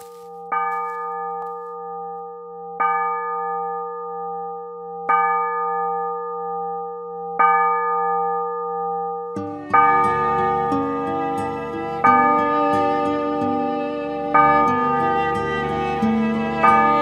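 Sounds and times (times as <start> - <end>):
bell ringing: 9.4 - 17.0.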